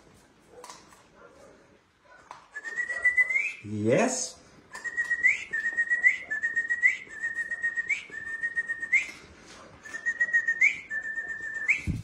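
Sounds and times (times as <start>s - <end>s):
person whistling: 2.6s - 3.6s, 4.7s - 12.0s.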